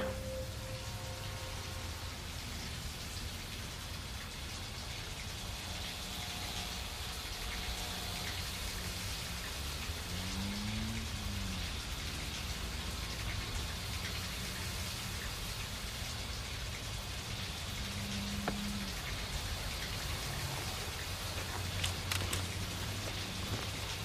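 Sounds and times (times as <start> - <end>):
low hum: 0.0 - 3.0
steady rain falling: 0.0 - 24.0.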